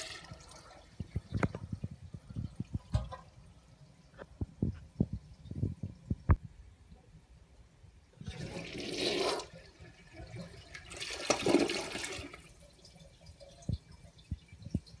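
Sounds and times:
toilet flushing: 0.0s - 1.0s, 8.2s - 14.4s.

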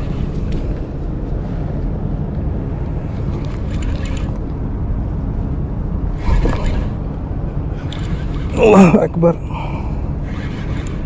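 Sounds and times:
low rumbling noise: 0.0s - 11.0s.

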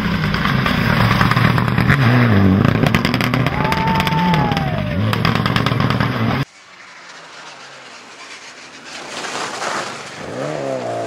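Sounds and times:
exhaust crackles: 0.0s - 11.0s
rally car engine at full throttle: 0.0s - 11.0s.

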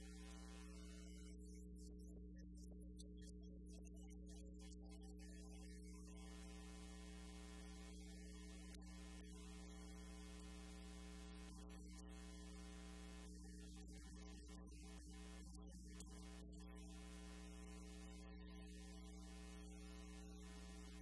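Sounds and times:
electrical mains hum: 0.0s - 1.3s.

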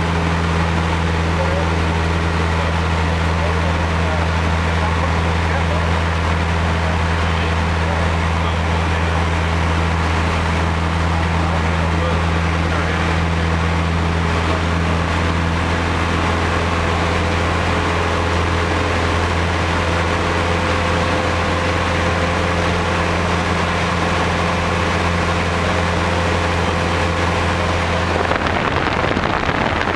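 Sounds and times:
airplane engine and propeller droning: 0.0s - 29.9s
rushing air noise: 28.0s - 29.9s.

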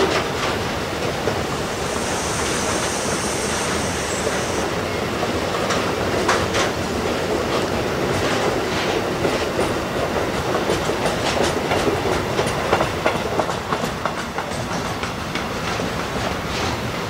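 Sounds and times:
train wheels clacking over rail joints: 0.0s - 17.0s
heavy rain hissing: 0.7s - 5.2s.

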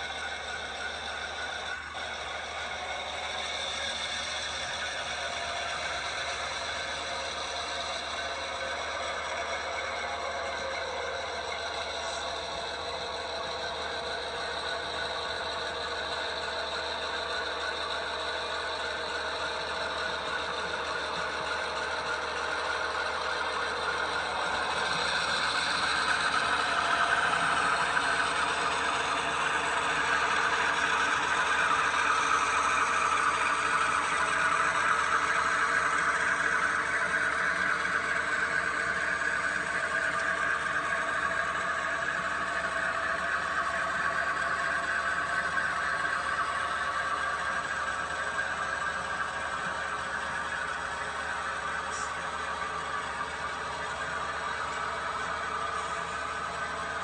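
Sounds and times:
model train motor hum and rattle: 0.0s - 57.0s.

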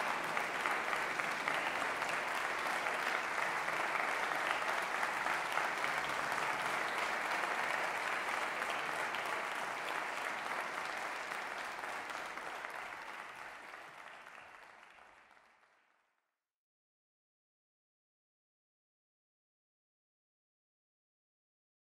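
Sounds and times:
audience applauding: 0.0s - 16.0s.

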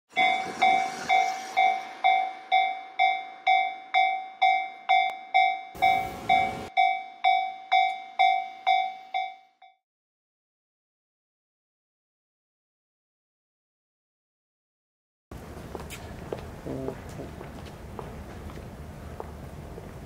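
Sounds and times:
level crossing warning bell: 0.1s - 9.8s.

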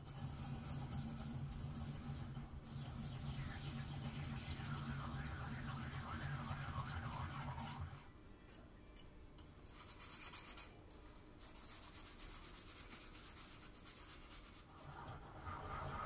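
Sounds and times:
yam scraped on grater: 0.0s - 4.1s
yam rubbed in ceramic mortar: 0.0s - 7.9s, 9.7s - 15.8s.

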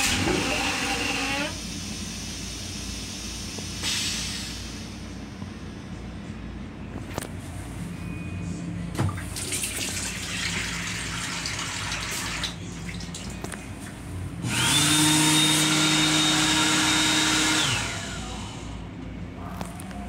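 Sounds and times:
hand dryer whining: 0.0s - 1.6s, 14.4s - 18.8s
hiss: 1.6s - 4.8s.

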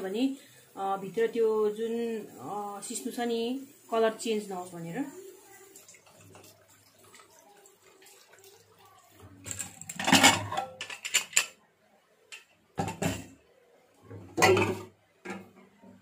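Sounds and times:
faint running water: 0.0s - 16.0s
metal lid clanking and scraping: 9.5s - 11.5s, 12.8s - 13.3s, 14.2s - 15.5s
metal lid clattering: 9.5s - 11.5s, 12.8s - 13.3s, 14.2s - 15.5s.

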